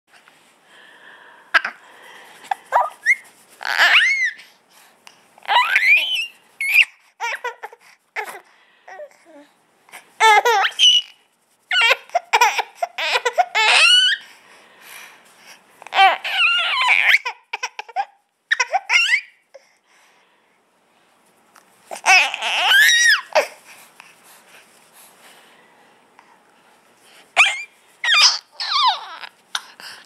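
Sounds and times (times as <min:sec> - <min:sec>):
baby laughing: 0:02.5 - 0:04.4, 0:05.5 - 0:08.4, 0:10.2 - 0:14.2, 0:16.0 - 0:19.4, 0:27.4 - 0:29.7.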